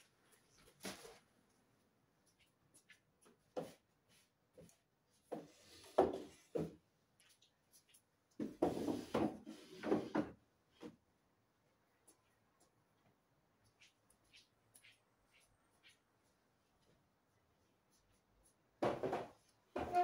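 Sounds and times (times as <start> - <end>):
chair scraping on tile floor: 8.6 - 10.4, 19.0 - 20.0
wooden chair knocking: 18.8 - 20.0.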